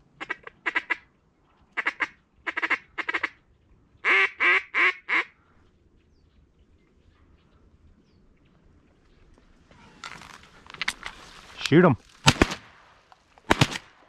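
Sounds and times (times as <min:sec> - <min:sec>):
duck quacking: 0:01.8 - 0:03.4.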